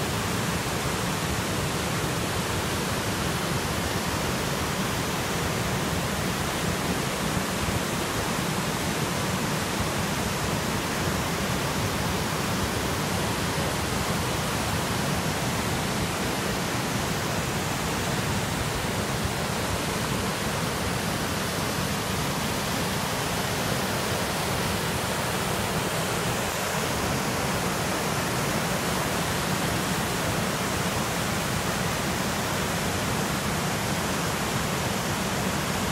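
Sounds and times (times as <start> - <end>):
waterfall and rapids rushing: 0.0 - 35.9.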